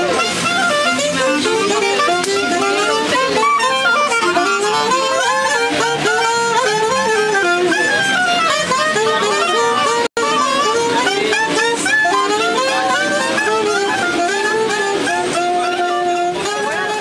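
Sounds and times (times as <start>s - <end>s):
instrumental background music: 0.0s - 17.0s.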